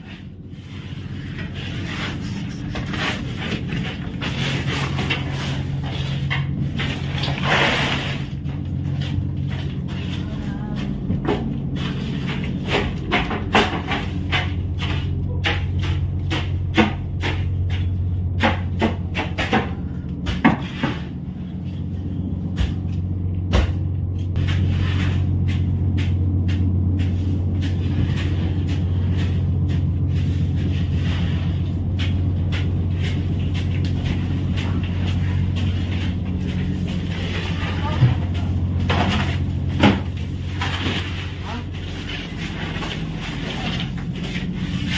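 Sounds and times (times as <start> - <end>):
boat engine humming: 0.0 - 44.9
sharp knocks and clatters: 10.8 - 21.8.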